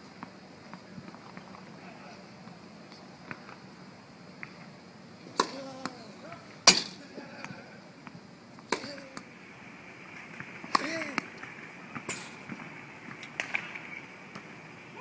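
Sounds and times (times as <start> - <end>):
tennis ball landing smack: 5.3 - 6.0, 6.6 - 7.0, 10.4 - 11.3
racket striking tennis ball: 5.3 - 7.0, 8.7 - 9.3, 10.4 - 11.3.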